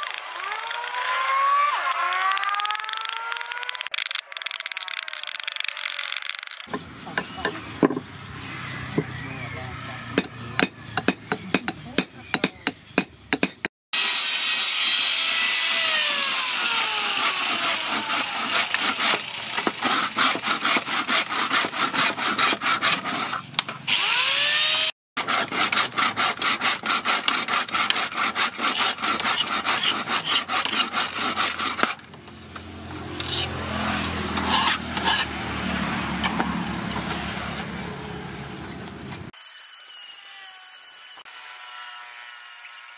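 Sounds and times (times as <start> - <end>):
file rasping on steel: 6.6 - 13.7, 17.0 - 23.9, 25.2 - 35.4.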